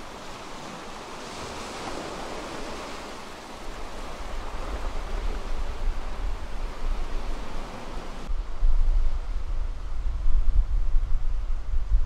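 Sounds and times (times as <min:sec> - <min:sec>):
surf washing over rocks: 0:00.0 - 0:08.3
wind buffeting microphone: 0:00.0 - 0:12.0.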